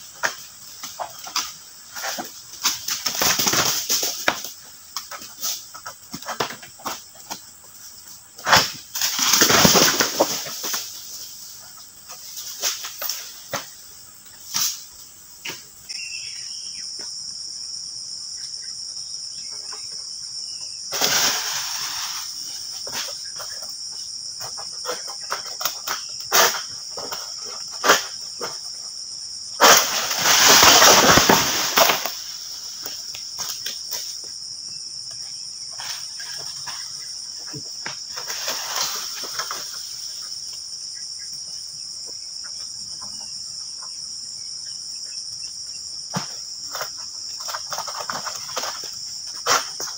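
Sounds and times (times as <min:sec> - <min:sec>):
frond crashing through leaves: 0:08.5 - 0:11.2, 0:20.9 - 0:22.4, 0:29.6 - 0:33.0
high-pitched insect drone: 0:15.8 - 0:24.3.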